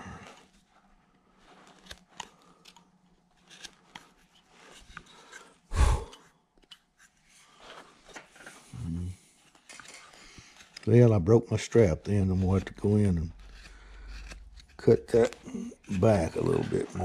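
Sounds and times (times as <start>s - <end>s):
knife carving wood: 1.5s - 7.3s, 10.4s - 10.9s, 12.1s - 17.0s.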